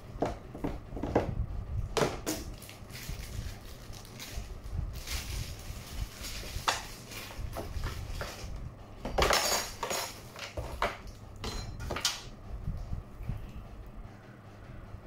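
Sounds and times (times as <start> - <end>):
rustling: 2.6 - 8.5.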